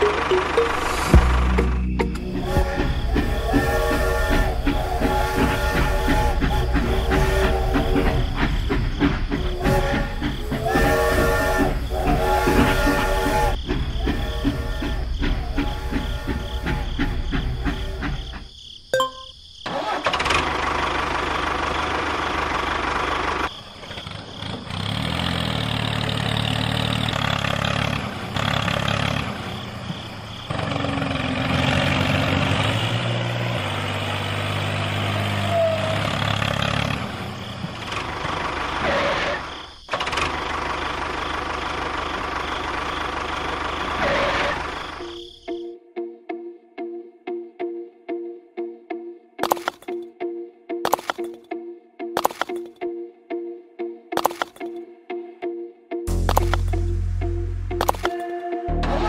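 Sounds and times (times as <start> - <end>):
vehicle engine running: 0.0 - 18.2, 20.2 - 45.2, 56.1 - 59.0.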